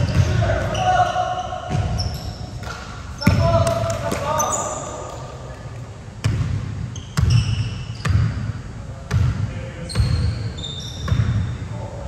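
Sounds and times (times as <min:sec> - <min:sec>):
short high squeaks: 0:00.7 - 0:02.5, 0:09.9 - 0:11.2.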